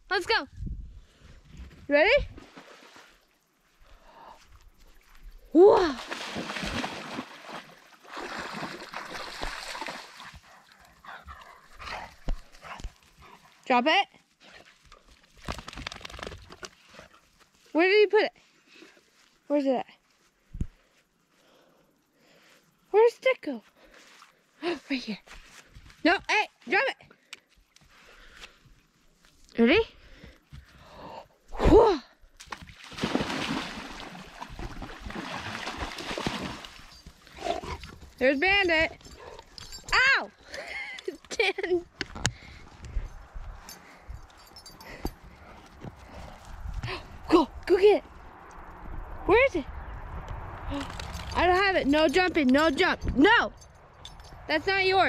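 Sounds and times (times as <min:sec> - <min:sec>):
dog splashing through water: 0:05.8 - 0:10.8, 0:32.4 - 0:37.3.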